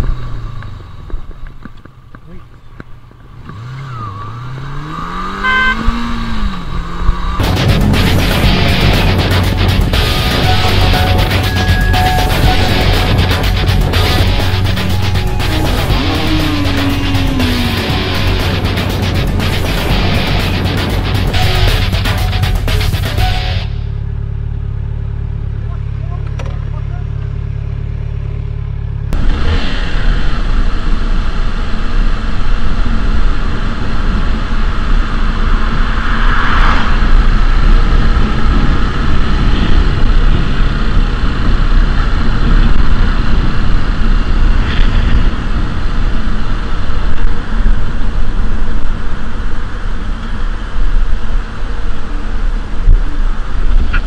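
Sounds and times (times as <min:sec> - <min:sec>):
motorcycle riding: 0:00.0 - 0:54.0
motorcycle engine idling: 0:17.2 - 0:29.1
wind rush on microphone: 0:29.2 - 0:54.0.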